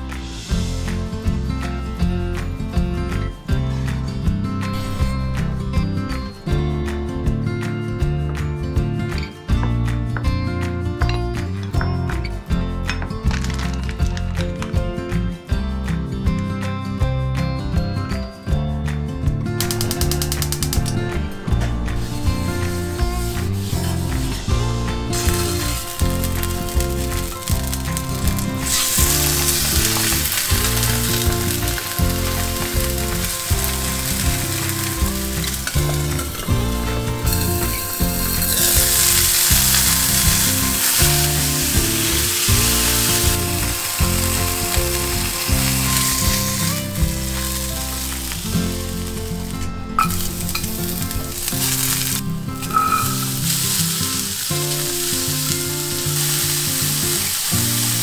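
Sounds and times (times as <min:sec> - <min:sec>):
oil sizzling and spitting: 0:19.6 - 0:58.0.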